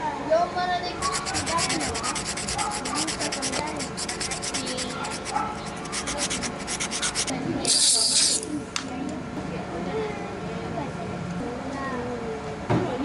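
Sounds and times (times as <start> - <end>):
sandpaper rubbing on rubber: 1.0 - 8.5.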